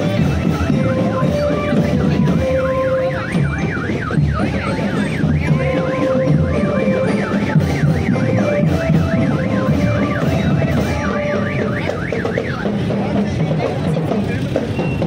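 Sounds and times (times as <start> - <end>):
held musical notes: 0.0 - 15.0
steady drumming: 0.0 - 15.0
siren in yelp mode: 0.7 - 12.8.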